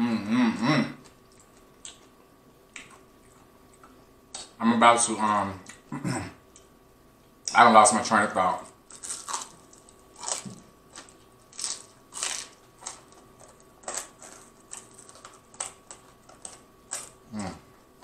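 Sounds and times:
low voice hum: 0.0s - 1.1s, 17.2s - 17.8s
crunching fried chicken: 8.6s - 17.7s.

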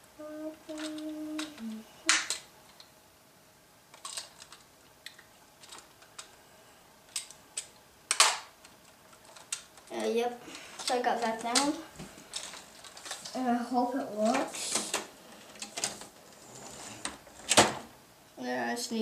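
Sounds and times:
person humming: 0.0s - 2.2s.

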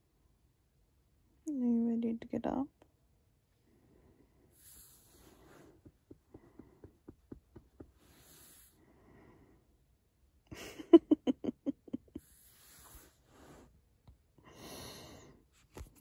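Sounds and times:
dog huffing: 4.6s - 6.9s, 7.5s - 8.8s
dog snuffling: 4.6s - 6.9s.

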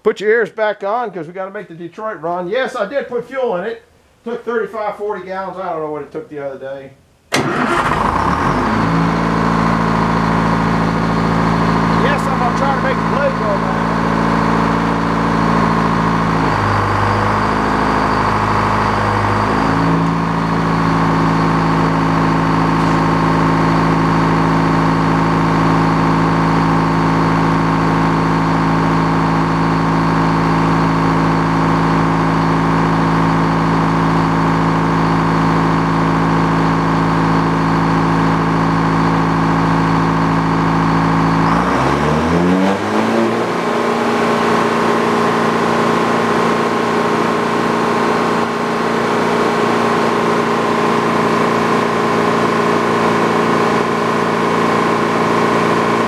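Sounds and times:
diesel engine running: 7.3s - 56.0s.

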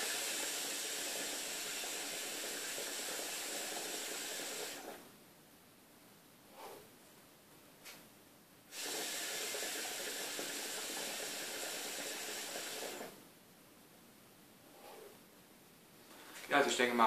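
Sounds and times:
air hissing through water pipe: 0.0s - 5.0s, 8.7s - 13.2s, 14.7s - 15.2s
soft breaths: 6.4s - 7.1s, 14.6s - 15.4s.

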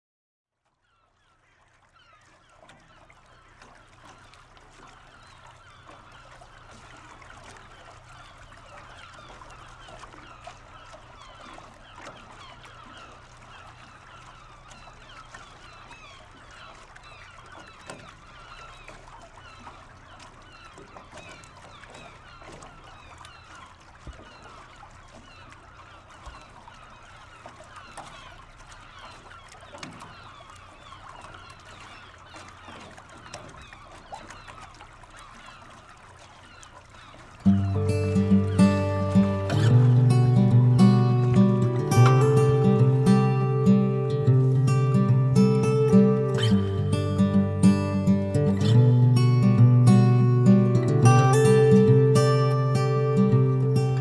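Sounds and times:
flock of birds honking and chirping: 1.4s - 54.0s.

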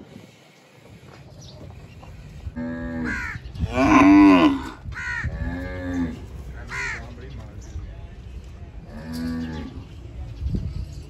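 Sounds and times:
cattle mooing: 2.6s - 4.8s
crows cawing: 3.0s - 3.5s, 4.9s - 5.4s, 6.7s - 7.2s.

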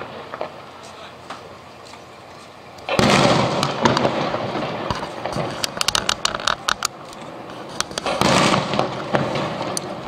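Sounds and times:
firework crackling pops: 0.0s - 10.0s
firework boom echoing: 2.9s - 6.7s, 7.3s - 10.0s.

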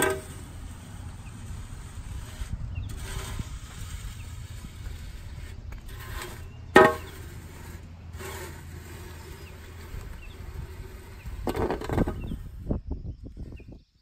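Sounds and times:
shovel scooping and scraping: 0.0s - 12.6s.

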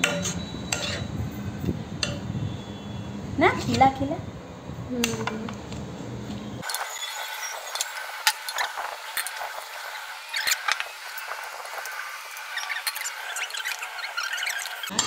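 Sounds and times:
utensils clinking against dishes: 0.0s - 1.1s
low background hum: 0.0s - 6.6s.

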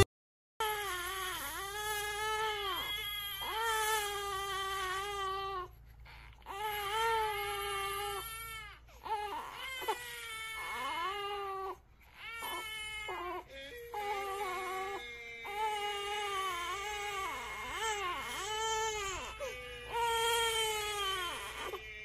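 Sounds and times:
baby crying: 0.6s - 22.0s
recorded baby crying on phone: 0.6s - 22.0s.

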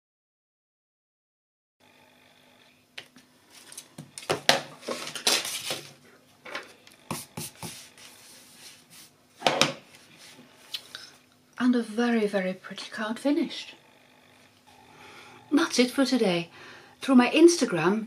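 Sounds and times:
paper rustling: 4.8s - 6.0s.

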